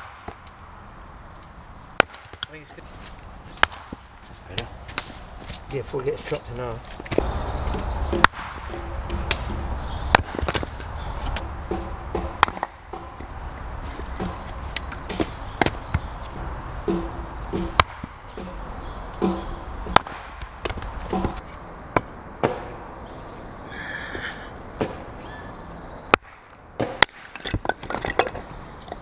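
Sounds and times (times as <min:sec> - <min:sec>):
hatchet chopping wood: 0:00.0 - 0:00.5, 0:02.0 - 0:02.6, 0:03.5 - 0:05.6, 0:07.0 - 0:21.4, 0:22.0 - 0:22.8, 0:26.1 - 0:28.4.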